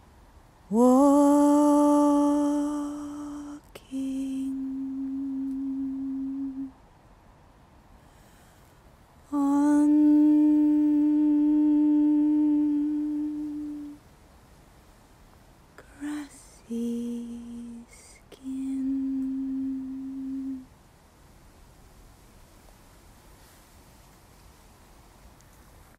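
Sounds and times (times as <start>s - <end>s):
woman singing long notes: 0.7s - 6.8s, 9.2s - 14.0s, 15.8s - 20.7s.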